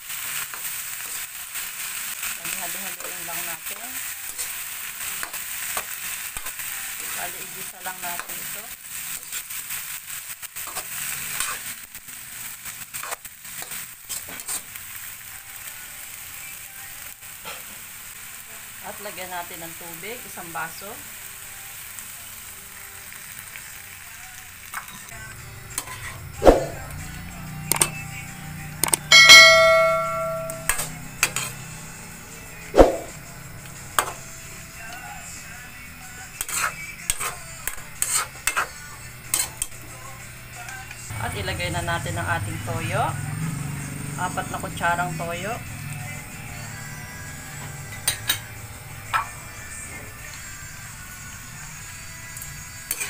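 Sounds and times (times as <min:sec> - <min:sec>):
food sizzling in hot oil: 0:00.0 - 0:53.0
metal spatula scraping wok: 0:10.6 - 0:11.8, 0:13.0 - 0:14.8, 0:25.7 - 0:26.8, 0:28.8 - 0:31.8, 0:36.3 - 0:39.8, 0:47.5 - 0:50.4
bell-like ding: 0:29.1 - 0:30.8.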